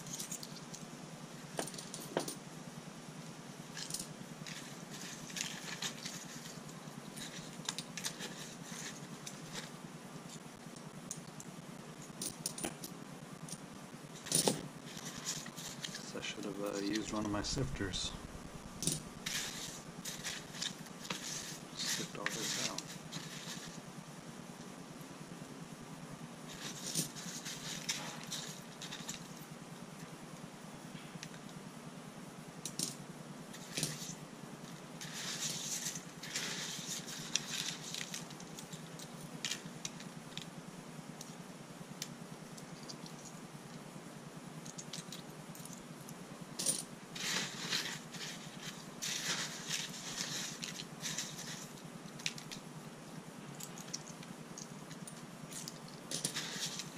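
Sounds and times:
coins and metal media clinking: 3.8s - 9.7s, 12.0s - 13.6s, 14.2s - 16.1s, 18.8s - 23.8s, 26.5s - 29.4s, 32.6s - 34.2s, 35.0s - 40.5s, 46.6s - 52.6s, 53.5s - 56.9s.

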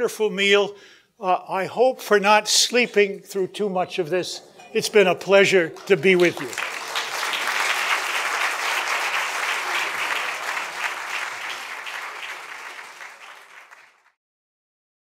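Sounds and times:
audience applauding: 5.6s - 14.2s.

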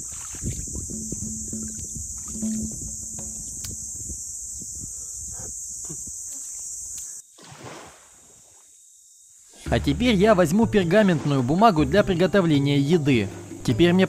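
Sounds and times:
water sloshing: 0.0s - 4.0s
cicada buzz: 0.0s - 10.2s
dishes clinking: 0.9s - 3.9s.

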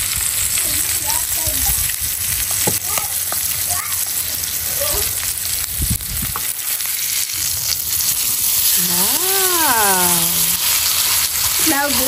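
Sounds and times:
steak sizzling in a pan: 0.0s - 12.0s
metal tongs turning steak: 6.3s - 12.0s
person making drawn-out sound: 8.8s - 10.6s.

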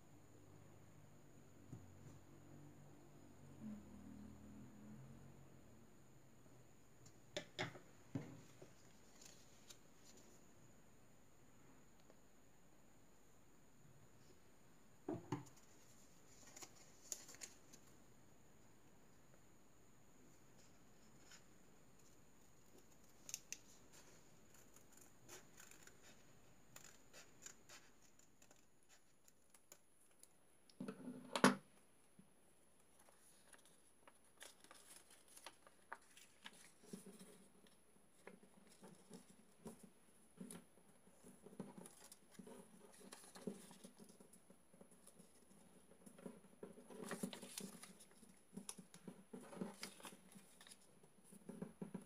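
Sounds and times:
paper rustling and crinkling: 8.5s - 10.4s, 15.4s - 18.0s, 32.9s - 51.6s.

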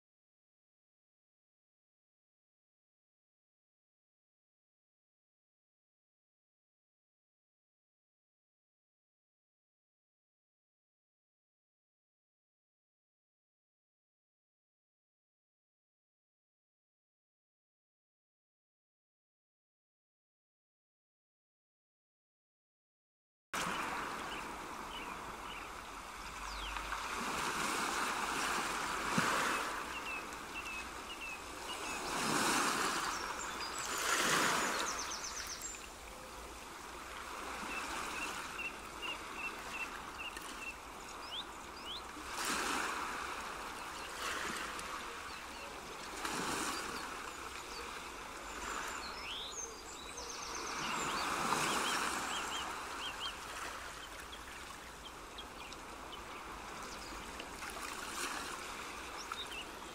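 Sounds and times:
rushing water: 23.6s - 59.9s.

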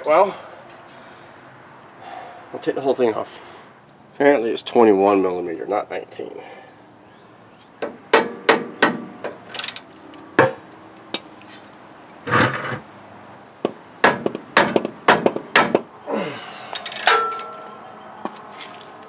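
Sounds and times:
hammer striking metal wrench: 11.1s - 11.4s, 16.8s - 17.6s.

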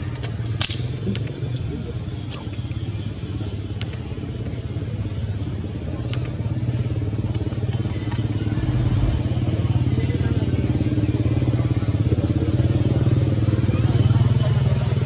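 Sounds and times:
engine running steadily: 0.0s - 15.0s
faint clicks: 0.2s - 1.7s, 3.8s - 4.6s, 6.0s - 6.4s.

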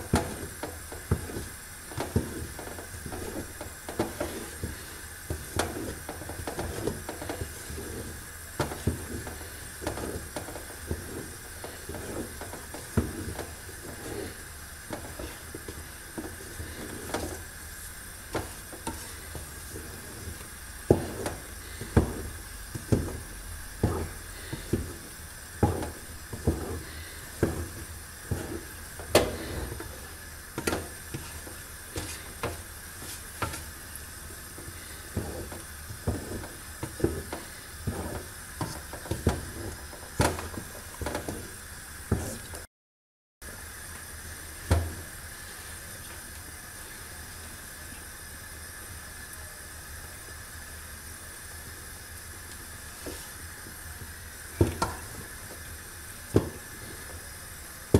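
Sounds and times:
wooden spoon stirring thick paste: 0.0s - 42.5s
steady hiss: 0.0s - 42.7s, 43.4s - 57.9s.

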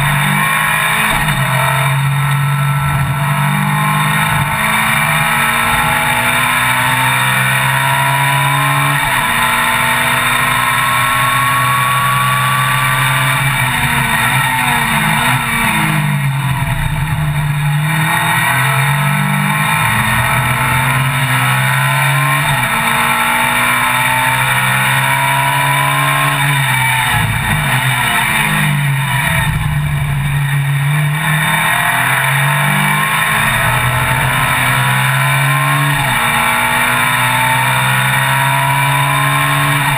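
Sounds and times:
race car engine revving: 0.0s - 39.9s.

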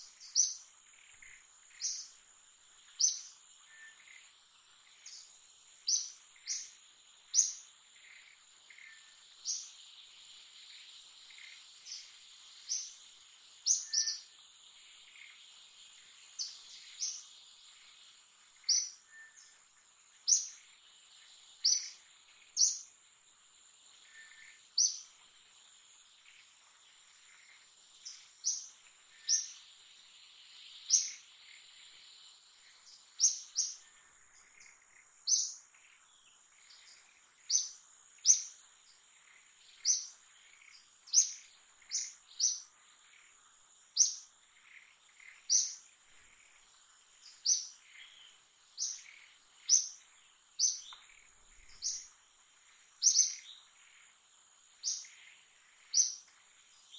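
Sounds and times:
birds chirping: 0.0s - 2.2s, 2.8s - 22.9s, 26.2s - 54.1s, 54.7s - 56.9s
insect drone: 0.0s - 56.9s.

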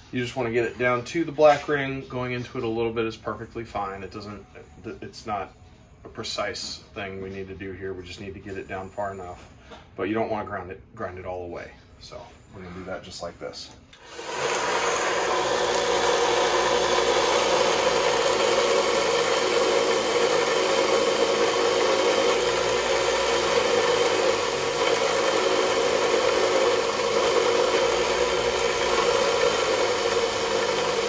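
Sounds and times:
belt sander grinding rubber: 14.0s - 31.0s.

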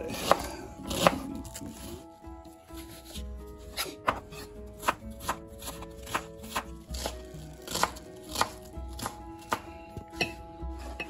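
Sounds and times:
knife chopping on plastic board: 0.1s - 1.3s, 3.8s - 10.3s.

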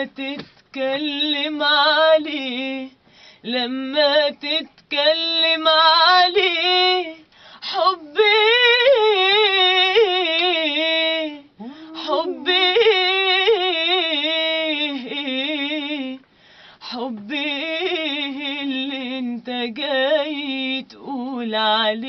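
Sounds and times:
woman singing: 0.0s - 22.0s.

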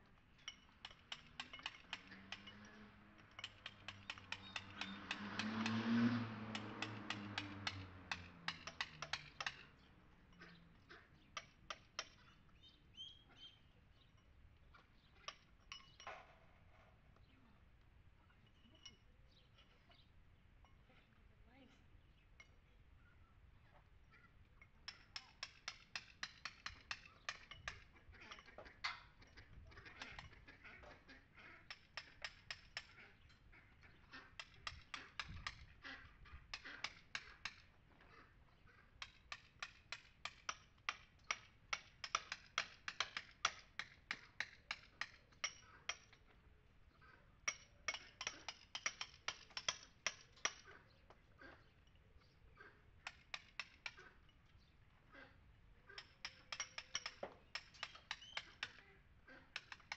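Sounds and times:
hammer tapping on chisel: 3.2s - 5.9s, 6.5s - 9.6s, 24.9s - 27.8s, 34.4s - 35.7s, 39.0s - 46.1s, 47.5s - 50.6s, 56.0s - 58.8s, 59.6s - 59.9s.

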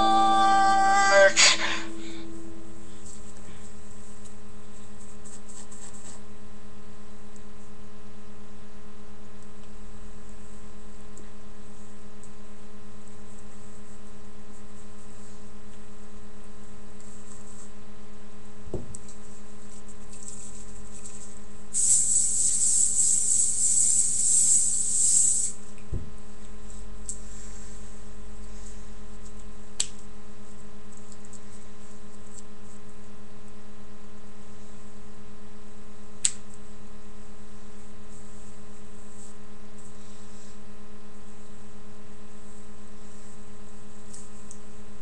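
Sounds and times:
buzzy electrical hum: 0.0s - 45.0s
hiss: 21.7s - 25.6s.

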